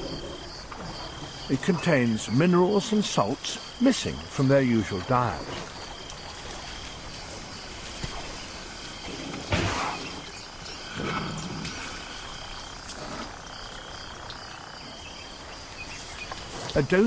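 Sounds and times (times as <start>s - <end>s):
high insect calls: 0.0s - 17.0s
elephant low rumbling call: 5.4s - 13.4s
elephant trunk blow: 9.0s - 10.3s.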